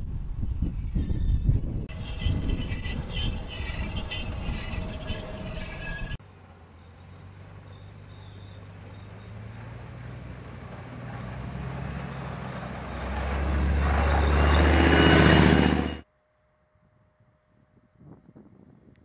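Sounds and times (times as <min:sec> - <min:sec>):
diesel engine of tracked vehicle: 0:04.1 - 0:16.0.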